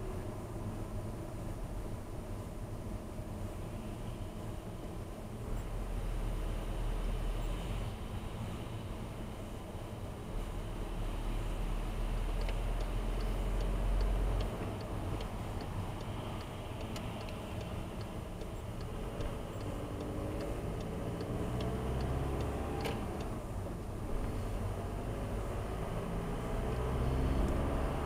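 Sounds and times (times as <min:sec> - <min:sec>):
engine and tyre rumble: 0:00.0 - 0:28.0
turn-signal indicator ticking: 0:12.4 - 0:23.4.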